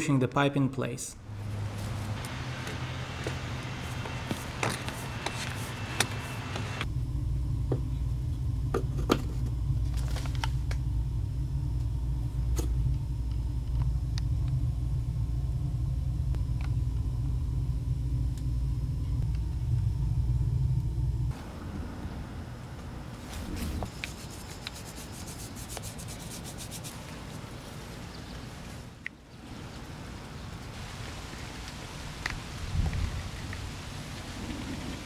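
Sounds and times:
low rumble: 0:06.8 - 0:23.9.

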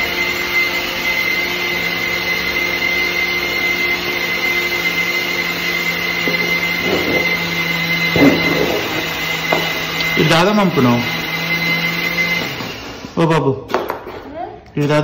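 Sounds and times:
machine hum: 0:01.0 - 0:13.2
constant high whine: 0:02.3 - 0:12.8.

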